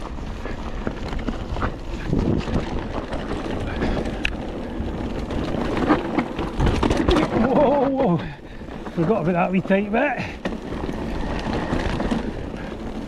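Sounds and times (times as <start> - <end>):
bike tyres rumbling on dirt: 0.0 - 13.0
wind buffeting microphone: 0.0 - 13.0
bike clattering knocks: 5.8 - 10.9.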